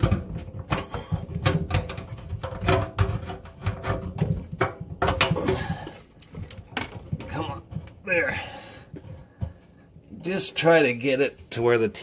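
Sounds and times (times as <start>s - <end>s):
plastic and metal parts knocking: 0.0s - 8.0s.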